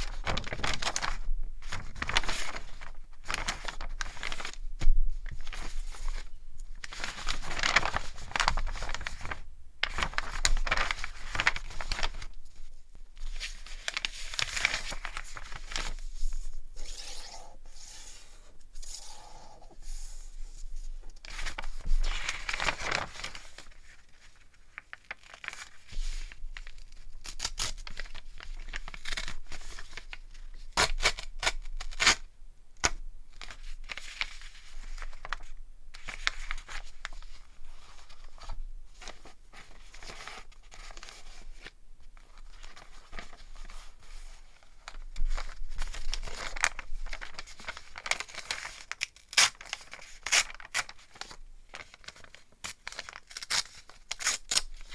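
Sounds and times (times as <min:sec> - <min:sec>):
paper crumpling and rustling: 0:00.0 - 0:17.8, 0:18.8 - 0:32.2, 0:32.8 - 0:54.9
paper tearing: 0:46.2 - 0:51.3.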